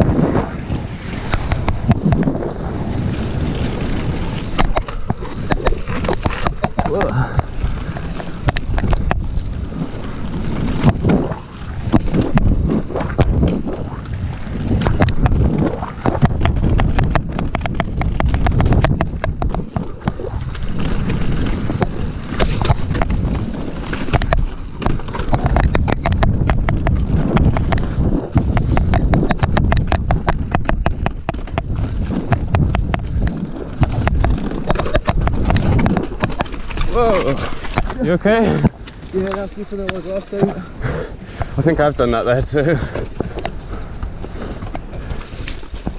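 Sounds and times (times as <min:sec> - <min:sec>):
bike tyres rumbling over rock: 0:00.0 - 0:45.9
wind buffeting microphone: 0:00.0 - 0:45.9
bike chain and frame rattling: 0:16.1 - 0:40.4.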